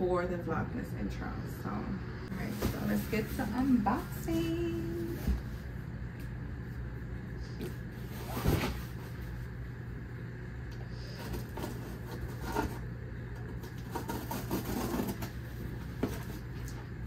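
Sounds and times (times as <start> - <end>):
steady low hum: 0.0 - 17.0
cardboard and tape scraping: 13.6 - 16.5.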